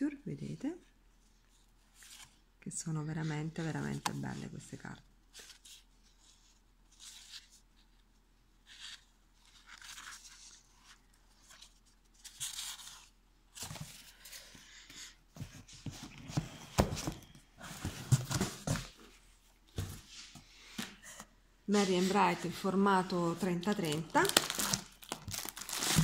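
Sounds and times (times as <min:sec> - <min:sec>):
paper rustling and handling: 0:08.6 - 0:20.4, 0:21.7 - 0:26.0.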